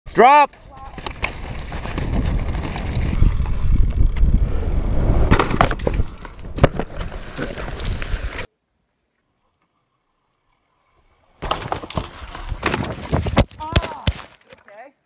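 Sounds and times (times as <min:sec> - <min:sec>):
tyre rumble on dirt trail: 0:00.5 - 0:08.5, 0:11.4 - 0:14.7
wind buffeting microphone: 0:00.7 - 0:05.3
bike crashing with knocks and clatter: 0:11.4 - 0:14.5.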